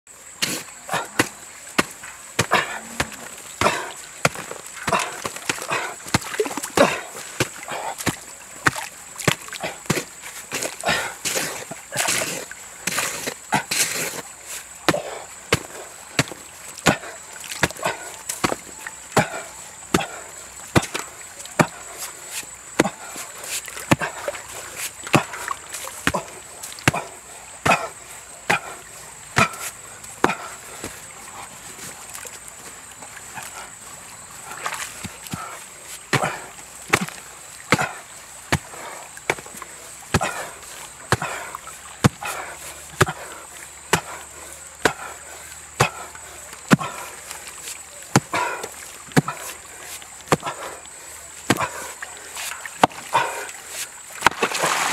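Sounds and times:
hoe striking dirt: 0.4 - 14.2, 14.9 - 18.6, 25.1 - 25.4, 36.1 - 39.5, 40.1 - 40.5, 46.7 - 47.0, 48.1 - 49.5, 50.3 - 50.7, 51.5 - 51.8, 54.2 - 54.9.

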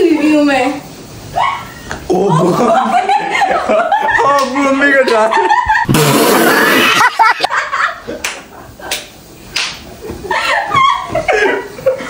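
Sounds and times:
excited voices: 1.3 - 7.5.

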